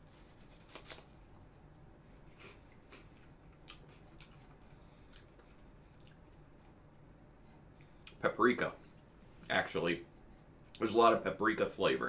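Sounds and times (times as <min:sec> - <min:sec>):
faint chewing crunches: 0:00.0 - 0:06.8.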